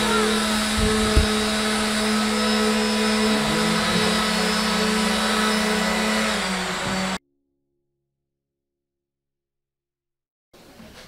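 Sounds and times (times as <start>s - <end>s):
electric machine hum: 0.0s - 7.2s.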